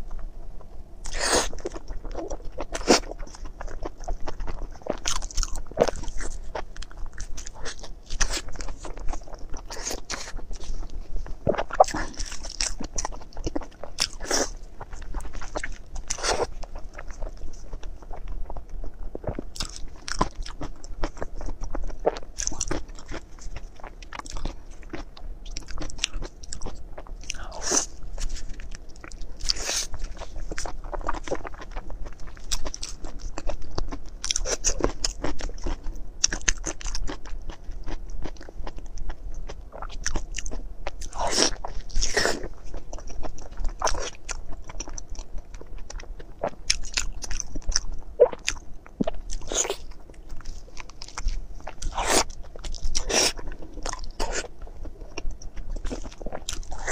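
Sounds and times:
person chewing food: 0:00.0 - 0:56.9.

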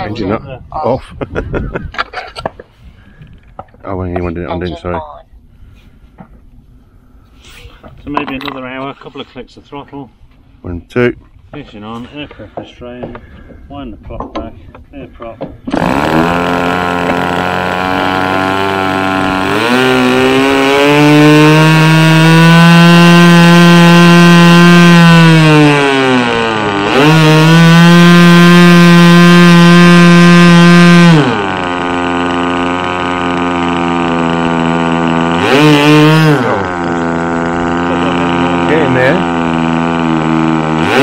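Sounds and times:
model plane engine revving: 0:15.7 - 0:41.0.

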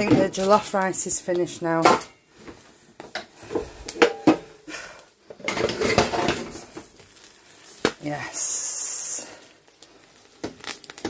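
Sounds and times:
pots and utensils clattering: 0:01.3 - 0:07.0.

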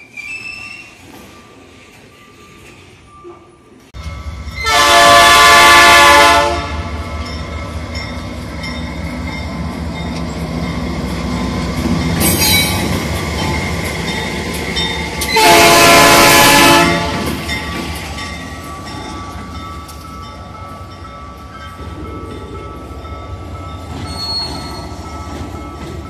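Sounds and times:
locomotive air horn blast: 0:04.6 - 0:06.9, 0:15.3 - 0:17.3
train wheels clicking on rail joints: 0:07.0 - 0:15.4, 0:17.0 - 0:26.0.

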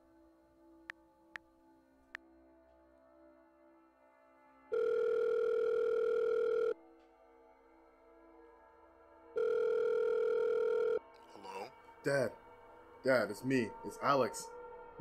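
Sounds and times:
telephone ringback tone: 0:04.7 - 0:06.8, 0:09.4 - 0:11.0.

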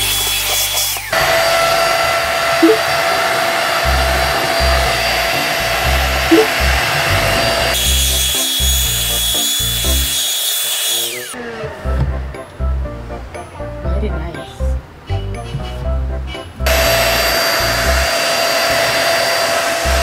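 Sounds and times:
vacuum cleaner motor whining: 0:16.7 - 0:20.0.

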